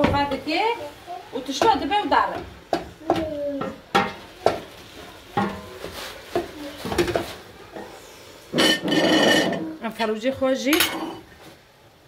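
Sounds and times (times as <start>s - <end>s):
wooden spoon stirring in pot: 0.0s - 11.7s
spoon knocking against pot: 1.5s - 4.7s.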